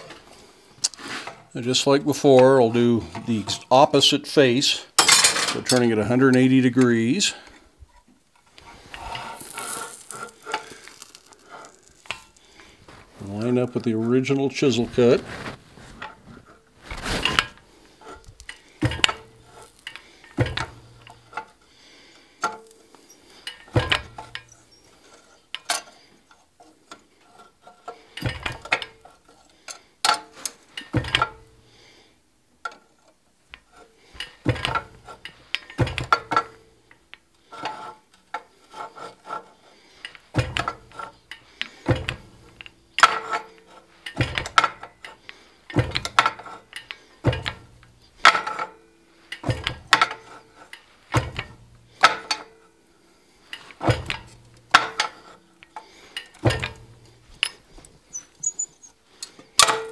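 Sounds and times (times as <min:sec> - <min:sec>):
small metal clinks: 0:57.3 - 0:59.4.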